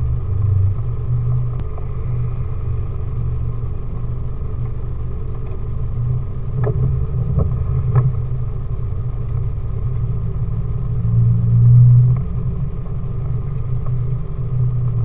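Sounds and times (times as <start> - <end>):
engine running at low revs: 0.0 - 15.0.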